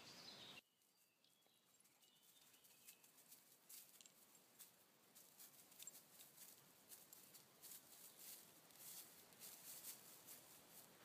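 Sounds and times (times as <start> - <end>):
faint bird chirps: 0.0 - 3.3
faint ticks and rustles: 0.8 - 11.0.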